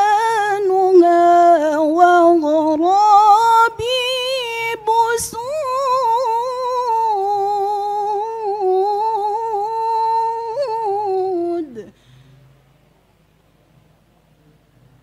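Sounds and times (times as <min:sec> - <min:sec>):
woman reciting melodically: 0:00.0 - 0:12.0
faint room noise: 0:00.0 - 0:15.0.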